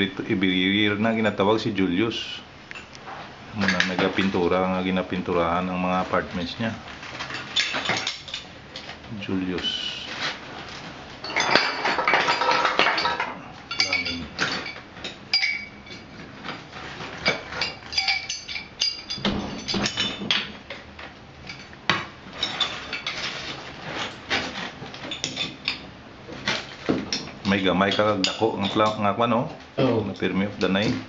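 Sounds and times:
hand tools clinking on metal: 7.2s - 8.9s, 11.2s - 16.2s, 17.2s - 20.8s.

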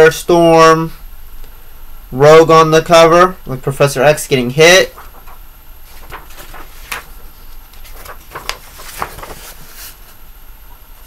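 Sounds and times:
paper rustling: 4.8s - 10.2s.

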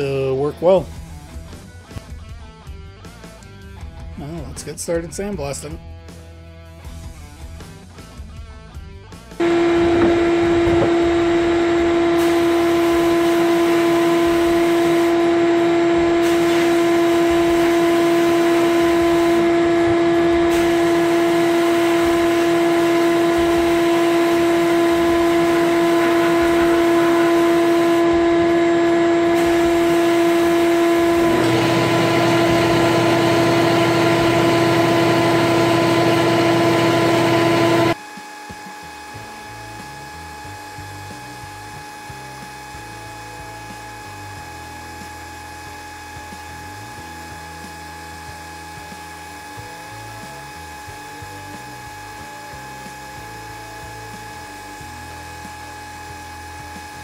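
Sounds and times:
air blast gun hissing: 9.4s - 38.0s
droning hum: 9.4s - 38.0s.

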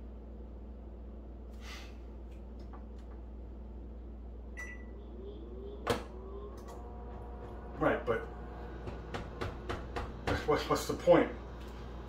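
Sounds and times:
steady low hum: 0.0s - 12.0s
short high beep: 4.6s - 4.9s.

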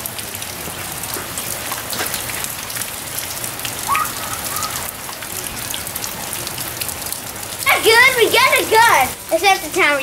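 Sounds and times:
steady rain falling: 0.0s - 10.0s
faint high call: 3.8s - 4.9s.

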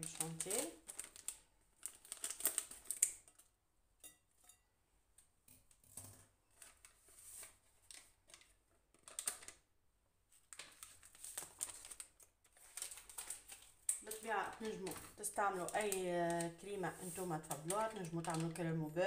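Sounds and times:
foil sachet crinkling: 0.0s - 3.4s, 10.4s - 18.9s.

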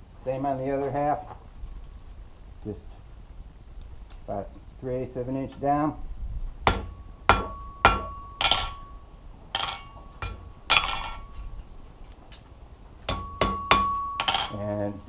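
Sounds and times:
hammer ringing on anvil: 6.7s - 12.2s, 13.1s - 15.0s.

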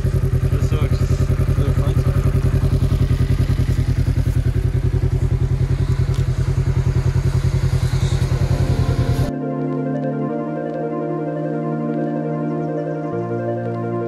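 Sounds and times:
engine idling with throbbing pulse: 0.0s - 14.0s
soft ambient music: 6.2s - 14.0s.

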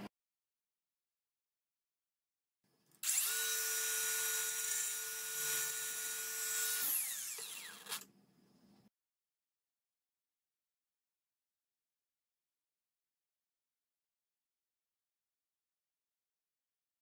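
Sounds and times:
angle grinder cutting metal: 3.0s - 8.1s.

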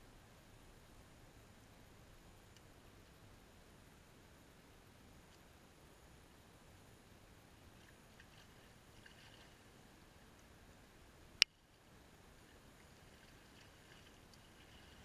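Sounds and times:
muddy water sloshing: 8.1s - 9.8s, 12.5s - 15.0s.

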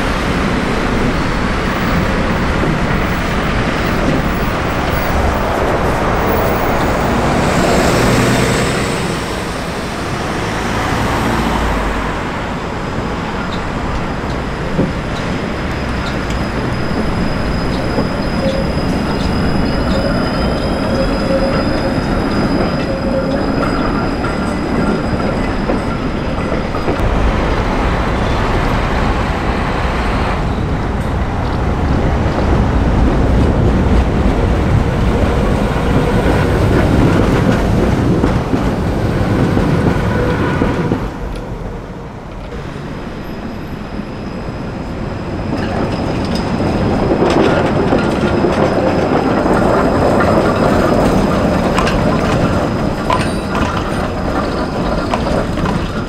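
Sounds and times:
tram wheel squeal: 0.0s - 56.0s
trams rumbling on track: 0.0s - 56.0s.

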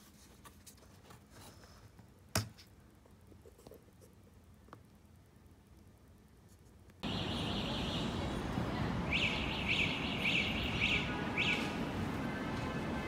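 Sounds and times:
background street rumble: 7.0s - 13.0s.

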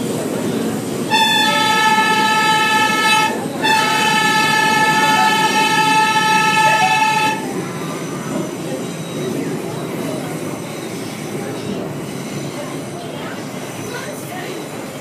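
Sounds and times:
train rumbling on elevated track: 0.0s - 15.0s
train horn chord: 1.1s - 7.5s.

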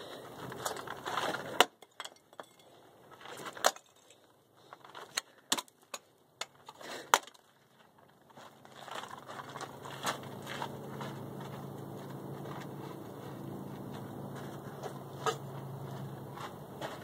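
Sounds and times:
footsteps on gravel: 7.4s - 17.0s.

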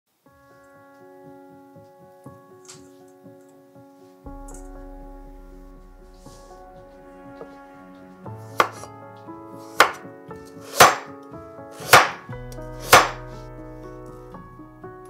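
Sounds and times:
background music: 0.2s - 15.0s
knife chopping carrot on board: 8.6s - 8.8s, 10.7s - 11.1s, 11.8s - 12.2s.

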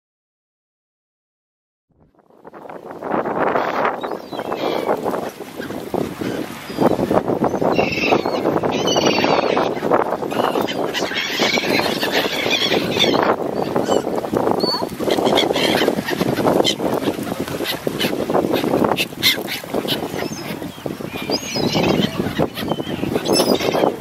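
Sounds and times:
ducks quacking: 14.7s - 24.0s.

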